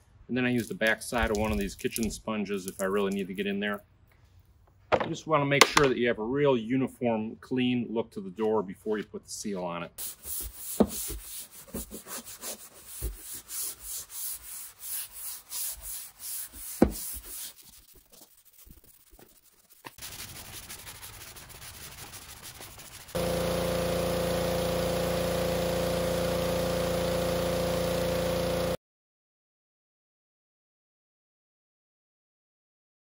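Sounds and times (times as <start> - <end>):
sponge scrubbing metal door: 10.0 - 28.8
loud steady hum: 23.2 - 28.8.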